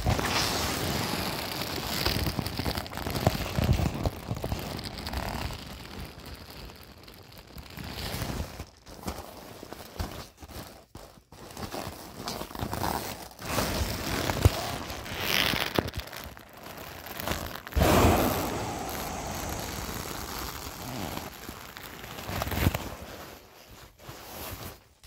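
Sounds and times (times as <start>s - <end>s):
inflatable toy vinyl crinkling: 0.0s - 25.0s
air bursting out: 17.8s - 21.6s.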